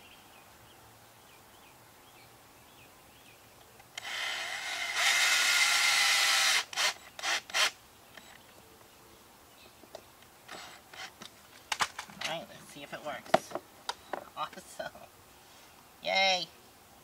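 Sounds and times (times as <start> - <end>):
cordless drill driving screw: 4.0 - 7.8, 10.5 - 11.2.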